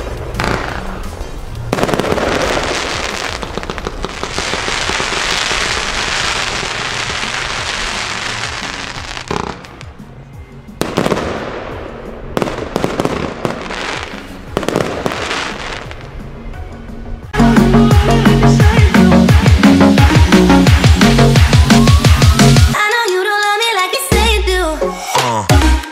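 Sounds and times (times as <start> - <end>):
fireworks shots and bursts: 0.0 - 9.9, 10.8 - 16.1, 18.6 - 22.8
fireworks crackling: 0.0 - 10.0, 10.8 - 16.1, 18.6 - 22.8
electronic music with heavy beat: 17.4 - 25.9.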